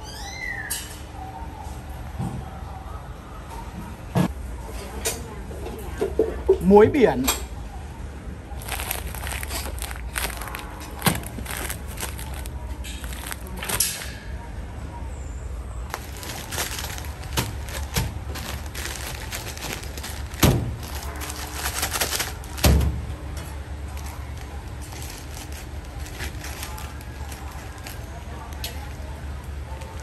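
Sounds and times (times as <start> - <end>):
plastic bags crinkling: 8.5 - 14.1, 15.9 - 30.0
bags thumping on counter: 15.9 - 23.0.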